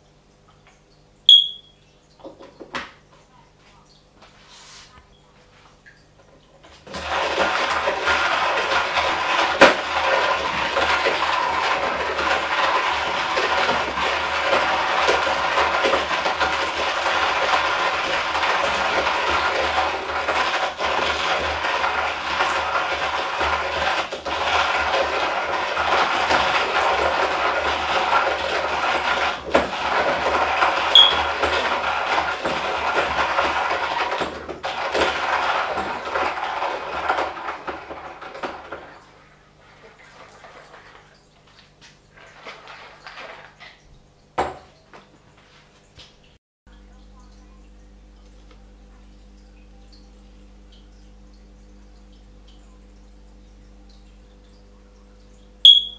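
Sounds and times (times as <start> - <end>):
hand coffee grinder grinding beans: 6.8 - 41.1, 42.1 - 43.8.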